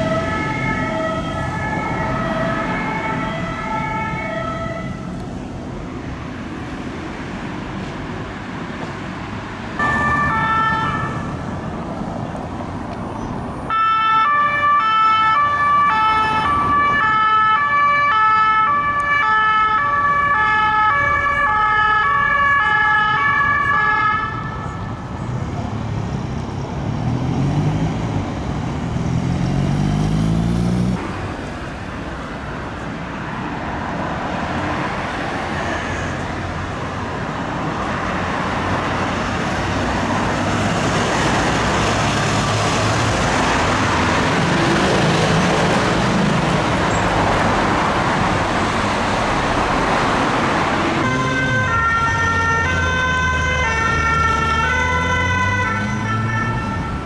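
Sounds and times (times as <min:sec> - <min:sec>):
two-tone siren: 0:00.0 - 0:05.1, 0:09.8 - 0:11.3, 0:51.0 - 0:57.0
sirens: 0:00.0 - 0:05.2, 0:09.8 - 0:11.5, 0:13.7 - 0:25.1, 0:49.4 - 0:57.0
traffic noise: 0:00.0 - 0:57.0
vehicle engine accelerating: 0:25.6 - 0:31.1.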